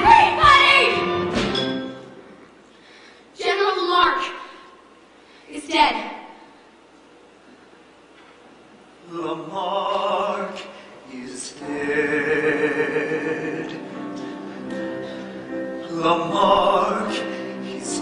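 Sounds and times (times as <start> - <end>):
musical theatre singing: 0.0 - 2.3, 9.0 - 18.0
orchestral accompaniment: 0.0 - 2.3, 11.6 - 18.0.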